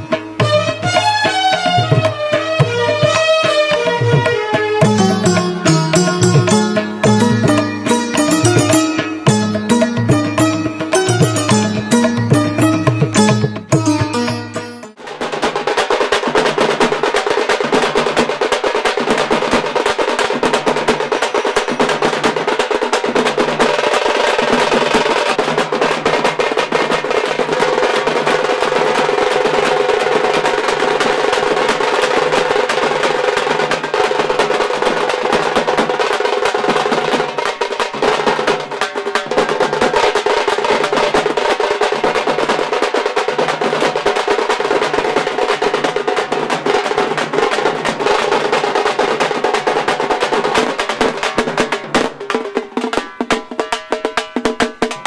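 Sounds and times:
fast drum roll: 0.0 - 55.0
deep drum beat: 4.0 - 15.6
steady held tone: 4.8 - 15.0.

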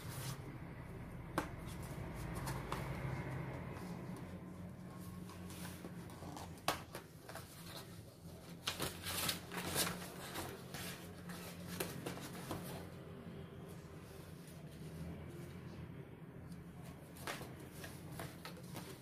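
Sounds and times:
cardboard packaging rustling: 5.0 - 12.9.

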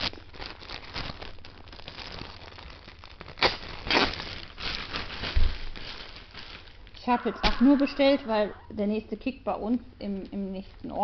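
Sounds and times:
plastic packaging crinkling: 0.0 - 8.7.

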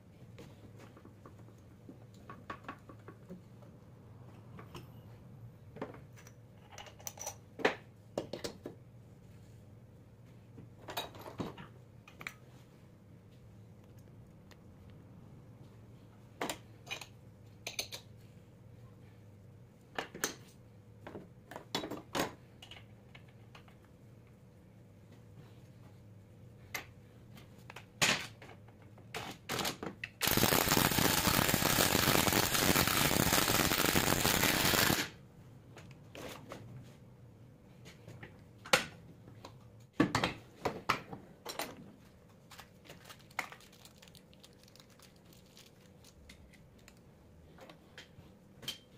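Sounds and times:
power tool running: 30.2 - 35.1.

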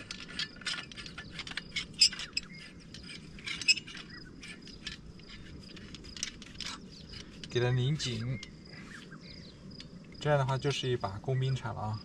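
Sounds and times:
metal clicking and scraping: 0.0 - 8.8
bird chirps: 1.1 - 5.5, 6.6 - 9.9.

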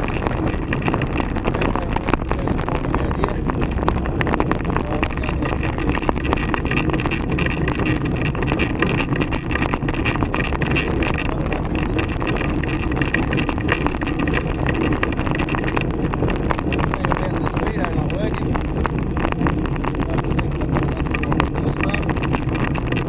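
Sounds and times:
road and wind rumble: 0.0 - 23.0.

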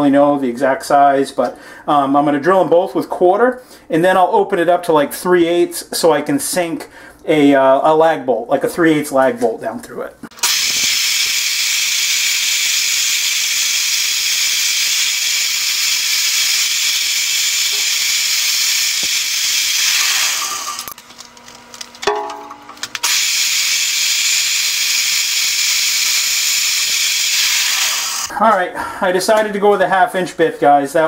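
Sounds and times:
drill motor whirring: 10.3 - 22.0, 22.8 - 28.3.

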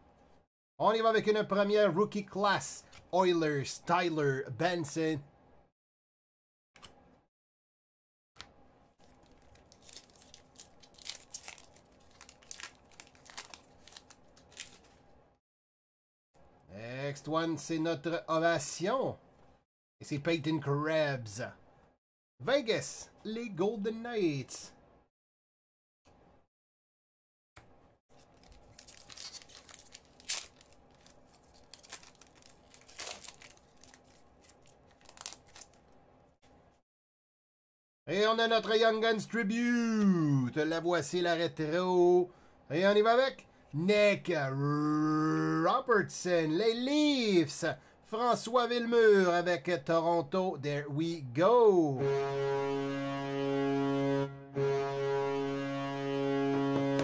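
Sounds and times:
wrapper being torn and crinkled: 9.0 - 15.1, 28.1 - 36.0.

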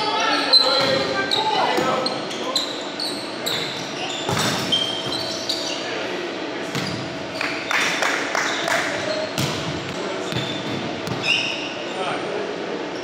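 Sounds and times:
players' voices: 0.0 - 4.4, 5.2 - 7.3
sneaker squeaks on hardwood floor: 0.2 - 5.9, 6.7 - 7.6, 8.5 - 11.9
volleyball hits: 4.3 - 4.7, 8.9 - 11.3.

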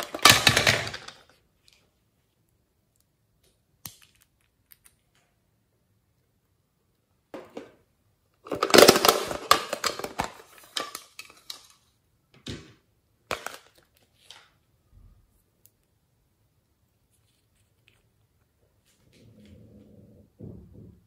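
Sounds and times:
plastic containers clattering: 0.0 - 1.3, 8.4 - 11.8, 12.4 - 14.5
plastic containers snapping open: 8.4 - 11.7, 13.3 - 14.5.

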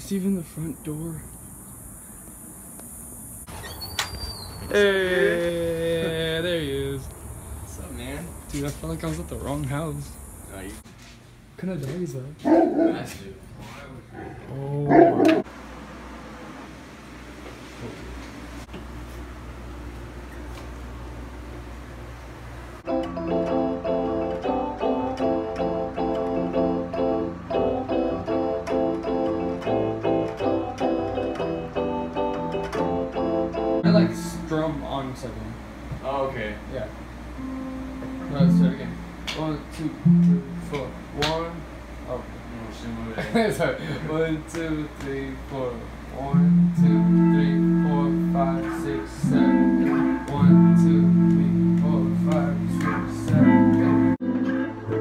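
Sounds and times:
electronic keyboard chords: 22.8 - 35.0, 37.3 - 41.2, 46.2 - 55.0
keyboard bass notes: 22.8 - 35.0, 37.3 - 41.2, 46.2 - 55.0.

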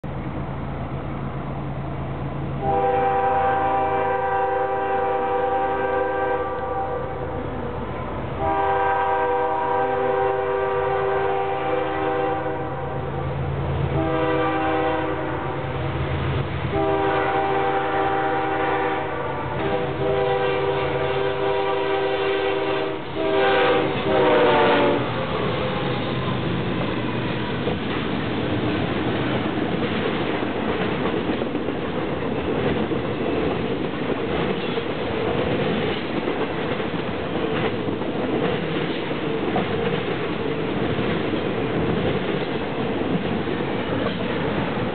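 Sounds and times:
locomotive air horn blasts: 2.6 - 7.3, 8.4 - 13.2, 13.9 - 15.7, 16.7 - 26.2.

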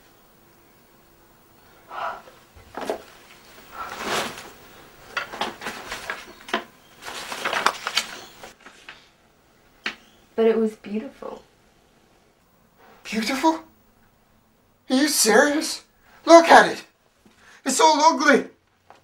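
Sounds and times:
paper rustling and crinkling: 2.6 - 9.1.

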